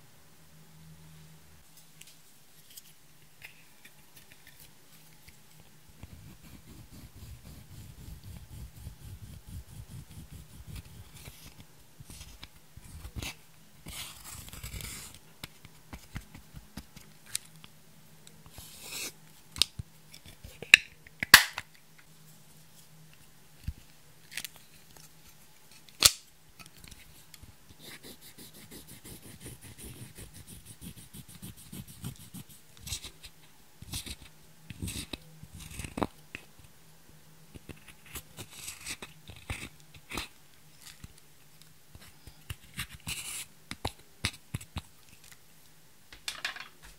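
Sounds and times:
stick scraping makeup powder: 0:06.0 - 0:11.4.

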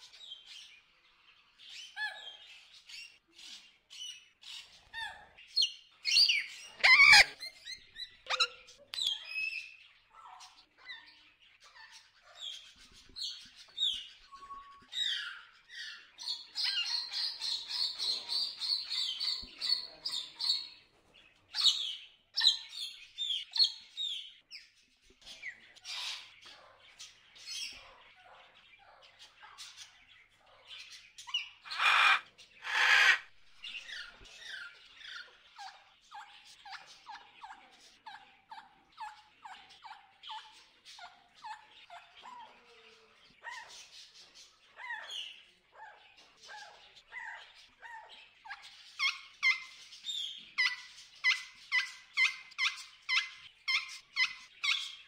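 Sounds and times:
macaws squawking: 0:06.3 - 0:08.7, 0:31.6 - 0:33.3.

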